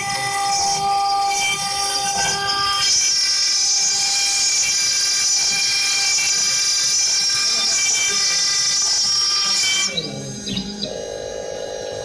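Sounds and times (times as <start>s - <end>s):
engraving machine spindle whine: 0.0s - 12.0s.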